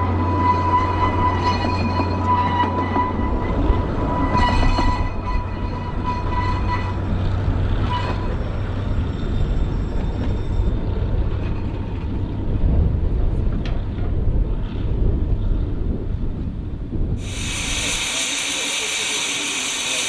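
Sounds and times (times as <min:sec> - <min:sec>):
train wheels squealing: 0:00.0 - 0:11.7, 0:17.2 - 0:20.0
low rumble of carriages: 0:00.0 - 0:20.0.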